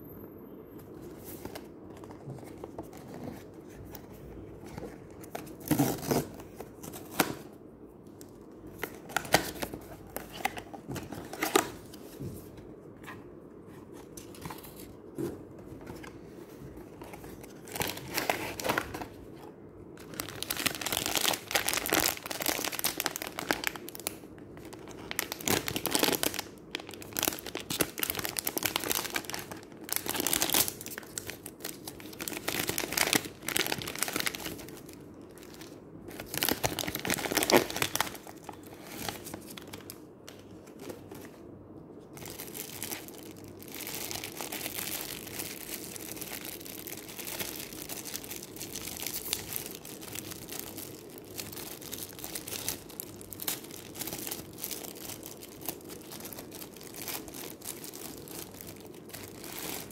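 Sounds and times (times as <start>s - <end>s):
cardboard and foil crinkling tearing: 20.1s - 24.2s, 24.8s - 39.8s.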